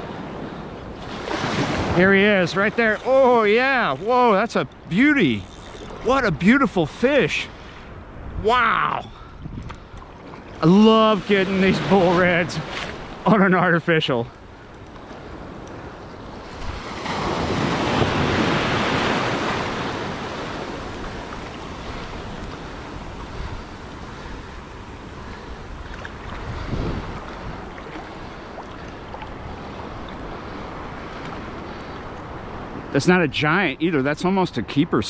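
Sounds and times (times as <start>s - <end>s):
small waves breaking: 0.0s - 8.3s, 9.6s - 33.0s
wind buffeting microphone: 7.9s - 10.6s, 14.4s - 32.9s.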